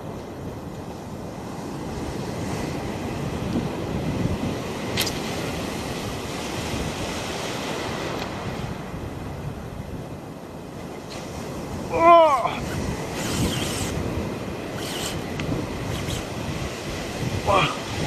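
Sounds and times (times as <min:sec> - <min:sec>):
wind buffeting microphone: 0:00.0 - 0:18.0
sharp click: 0:05.0 - 0:05.2.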